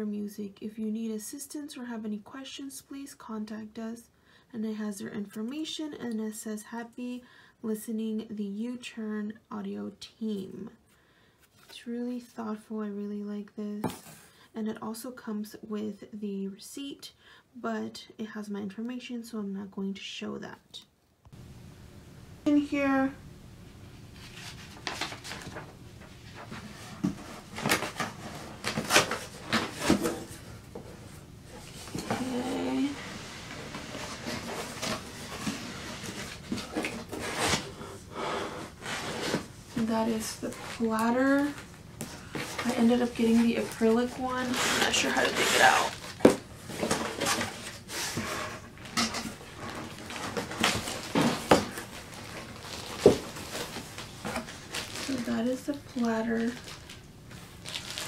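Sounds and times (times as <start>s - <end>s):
cardboard scraping and rustling: 24.2s - 37.8s, 38.6s - 56.9s
plastic wrap crinkling: 48.8s - 58.0s.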